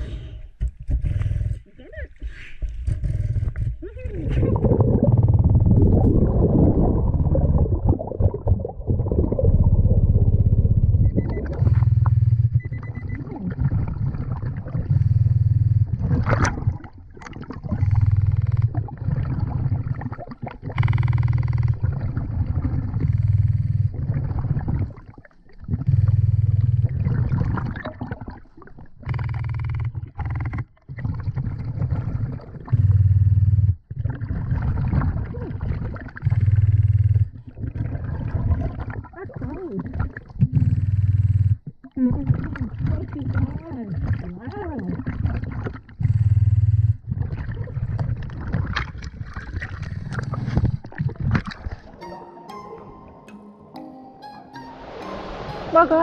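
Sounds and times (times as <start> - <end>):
diver inhaling through regulator: 0.0 - 1.6
water noise: 0.0 - 33.3, 33.9 - 56.0
diver exhaling bubbles underwater: 2.6 - 29.2, 30.0 - 52.0.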